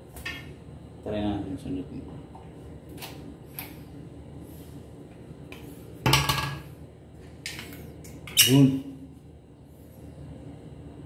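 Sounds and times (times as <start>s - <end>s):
objects clattering: 6.1s - 6.7s.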